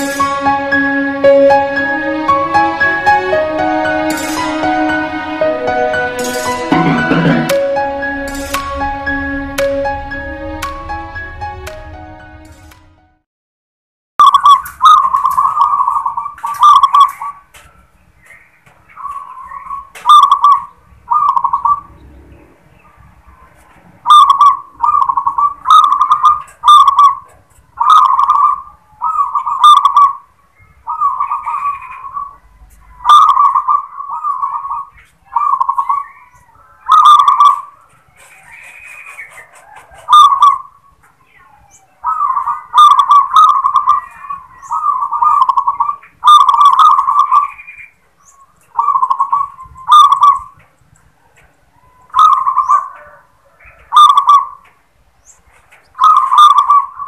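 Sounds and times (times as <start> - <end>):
dove cooing: 20.0 - 21.9, 24.1 - 30.2, 30.9 - 36.3, 36.9 - 37.8, 38.4 - 40.9, 41.5 - 47.6, 48.7 - 50.6, 51.3 - 54.6, 56.0 - 57.0.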